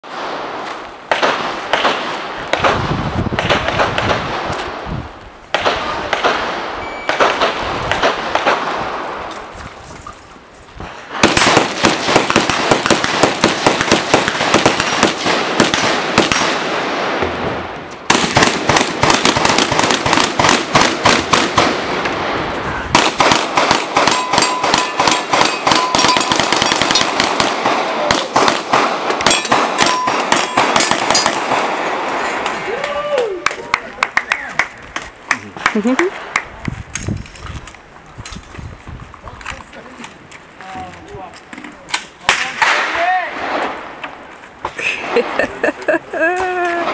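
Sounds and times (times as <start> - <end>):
rapid gunfire on steel targets: 1.1 - 2.8, 11.1 - 17.2, 18.1 - 22.1, 22.9 - 32.4.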